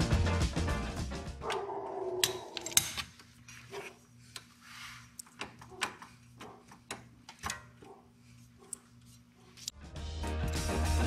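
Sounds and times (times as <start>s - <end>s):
wrench clicking and tapping: 5.2s - 7.8s.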